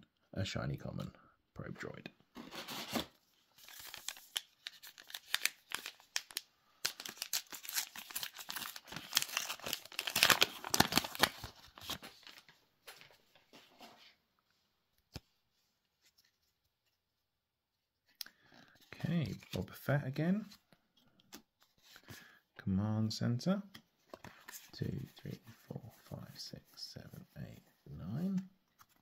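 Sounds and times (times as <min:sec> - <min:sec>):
foil wrapper tearing and crinkling: 0:03.6 - 0:11.9.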